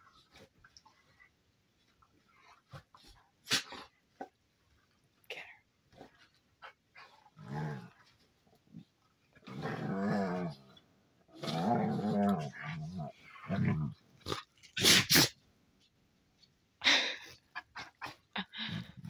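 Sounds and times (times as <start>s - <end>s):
soft clicks and rustles: 0.0s - 9.5s
dogs growling: 7.0s - 8.2s, 8.8s - 14.8s.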